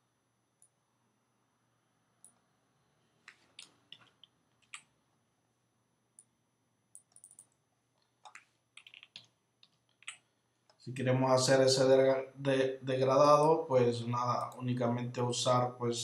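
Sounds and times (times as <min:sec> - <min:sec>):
mouse and keyboard clicks: 0:08.2 - 0:10.3.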